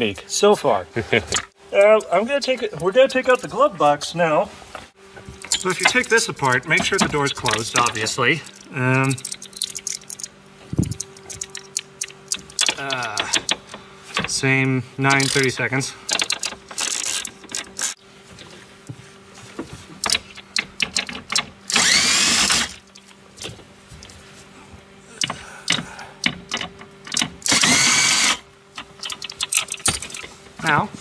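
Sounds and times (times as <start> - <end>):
faint steady hum: 0.0 - 31.0
tool and trim clicks and rattles: 5.4 - 14.4, 15.1 - 18.0, 20.0 - 23.5, 25.2 - 30.3
power driver spinning screws: 15.1 - 18.0, 21.7 - 22.9, 26.5 - 28.4.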